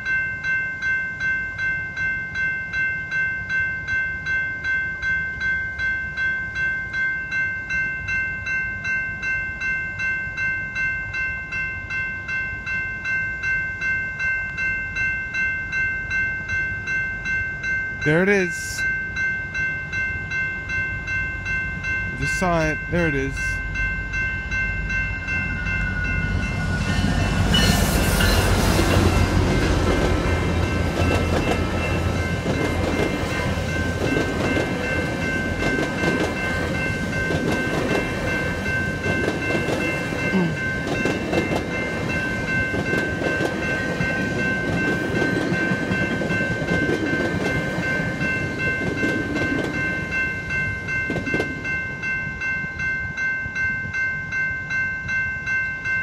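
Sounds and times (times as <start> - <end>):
crossing warning bell ringing: 0.0 - 56.0
diesel locomotive passing: 11.5 - 54.8
train wheels clicking over rails: 27.4 - 50.3, 50.9 - 51.8.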